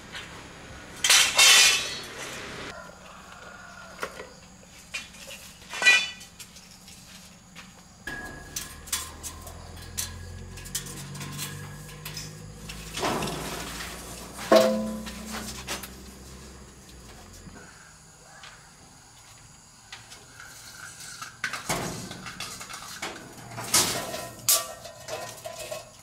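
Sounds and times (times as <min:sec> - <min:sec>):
metal objects clanking and scraping: 0:01.0 - 0:02.5, 0:04.1 - 0:07.0, 0:08.1 - 0:16.7, 0:20.4 - 0:26.0
low steady hum: 0:08.1 - 0:17.5.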